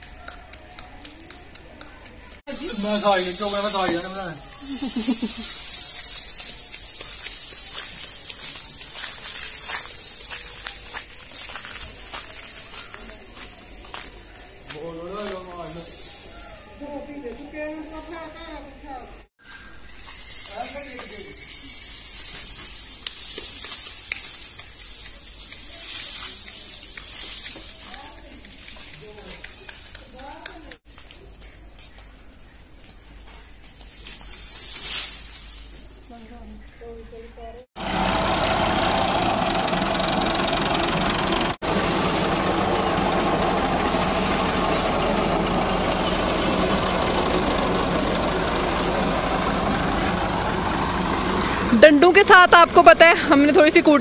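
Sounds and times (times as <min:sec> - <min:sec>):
dry stalks rustling and crackling: 0:00.0 - 0:18.2, 0:19.5 - 0:32.2, 0:33.2 - 0:36.8, 0:41.6 - 0:54.0
steady high hiss: 0:02.5 - 0:10.9
tractor diesel engine running: 0:02.5 - 0:13.2, 0:37.8 - 0:54.0.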